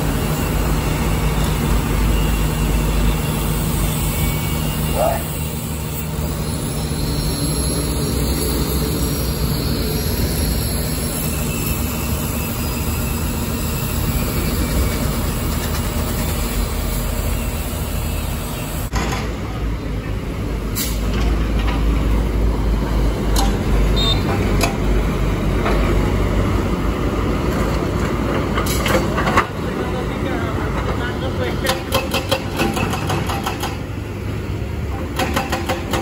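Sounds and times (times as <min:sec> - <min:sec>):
heavy truck engines running: 0:00.0 - 0:36.0
trucks passing on road: 0:00.0 - 0:36.0
excavator hydraulic breaker: 0:31.6 - 0:34.0, 0:34.9 - 0:36.0.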